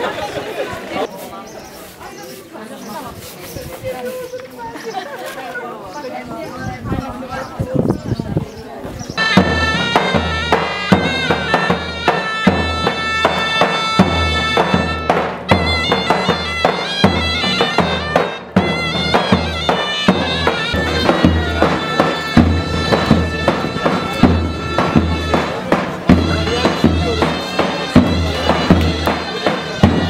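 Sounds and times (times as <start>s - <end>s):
reed wind instrument melody: 9.1s - 30.0s
steady drum beat: 9.2s - 30.0s.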